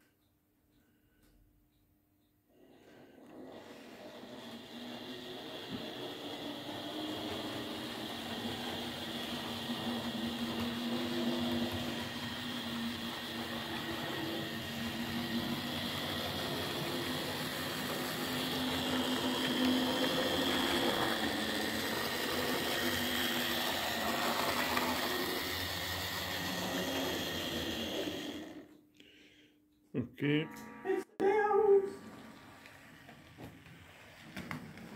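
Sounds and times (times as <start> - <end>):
model train wheels rumbling on track: 2.7 - 28.7
small electric motor whirring: 3.2 - 28.7.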